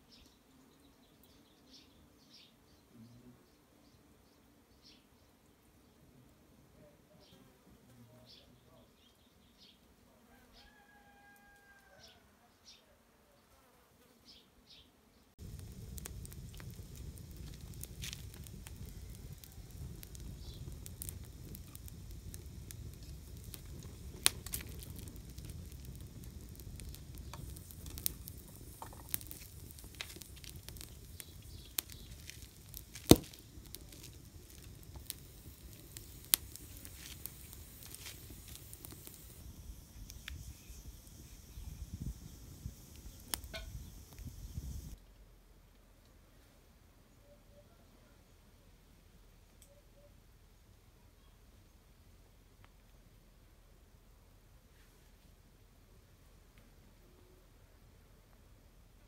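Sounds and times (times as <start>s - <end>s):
low rumble: 15.4s - 45.0s
sharp snaps and pops: 15.4s - 45.0s
wood fire crackling: 15.4s - 45.0s.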